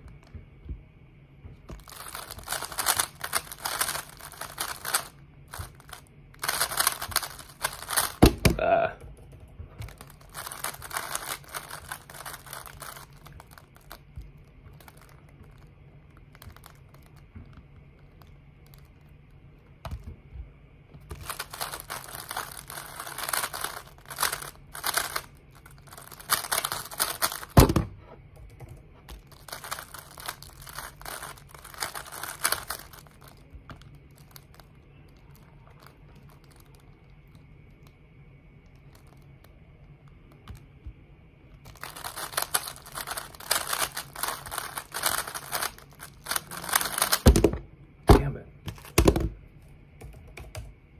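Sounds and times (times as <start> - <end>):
puzzle cube clicking: 1.9 - 8.2.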